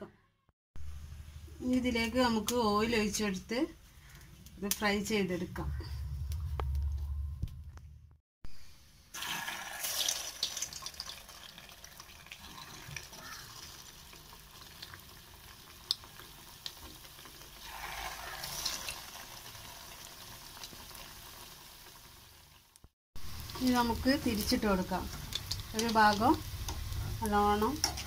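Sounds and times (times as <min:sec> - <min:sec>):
oil sizzling and crackling: 0:09.1 - 0:28.0.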